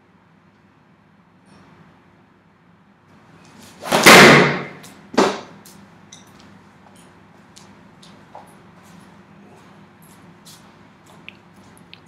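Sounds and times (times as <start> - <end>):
foam ball slamming into door: 3.9 - 5.4.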